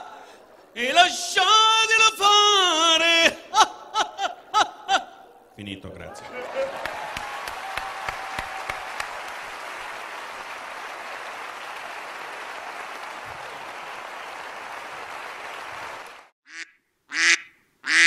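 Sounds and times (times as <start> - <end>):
audience applause: 5.9 - 16.3.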